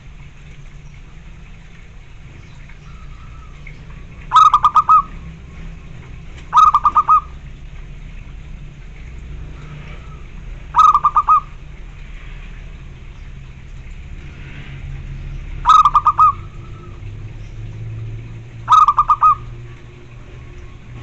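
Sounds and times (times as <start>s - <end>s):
dove cooing: 4.2s - 7.6s, 9.6s - 11.7s, 15.6s - 17.1s, 18.6s - 21.0s.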